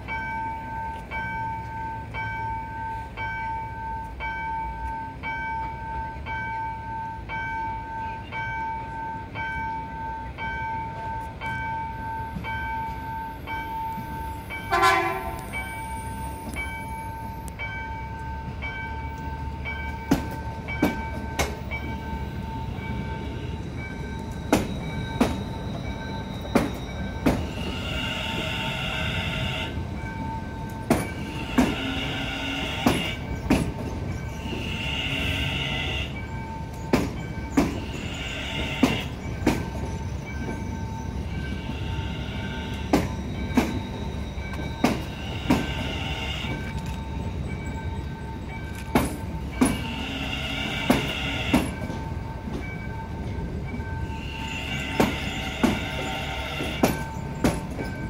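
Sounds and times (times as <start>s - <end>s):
train wheels clacking: 0.0s - 58.0s
train horn blast: 14.6s - 15.5s, 31.2s - 33.3s, 34.4s - 36.2s, 49.7s - 51.8s
wheel squeal: 24.0s - 29.6s, 39.8s - 47.8s, 54.1s - 58.0s.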